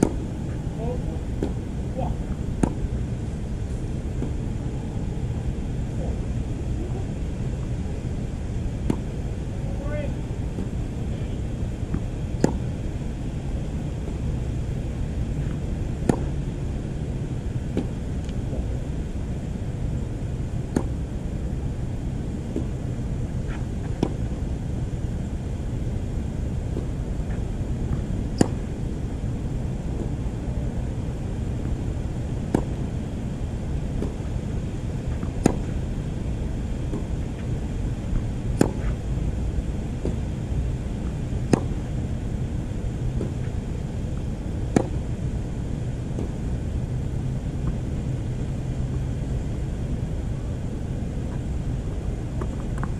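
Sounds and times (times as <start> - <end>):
tennis racket hitting ball: 0.0 - 0.2, 2.6 - 2.9, 11.9 - 12.7, 16.0 - 16.3, 28.4 - 28.7, 32.4 - 32.8, 35.2 - 35.8, 38.5 - 39.0, 41.4 - 41.8
steady low rumble: 0.0 - 52.9.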